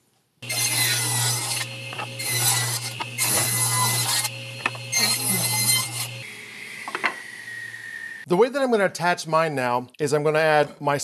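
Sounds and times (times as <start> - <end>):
saw blade cutting wood: 0.4 - 6.3
table saw motor hum: 0.4 - 8.2.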